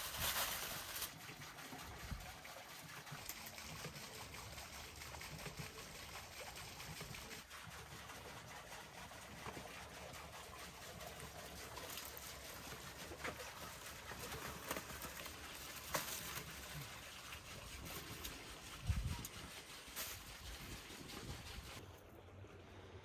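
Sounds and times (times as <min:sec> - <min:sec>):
aluminium foil crinkling: 0:00.0 - 0:01.2
steady outdoor hiss: 0:00.0 - 0:07.5.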